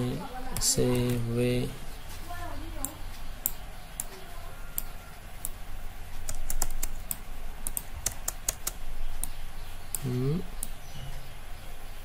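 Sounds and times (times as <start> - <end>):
low steady hum: 0.0 - 12.0
keyboard and mouse clicking: 0.5 - 1.3, 4.8 - 10.8.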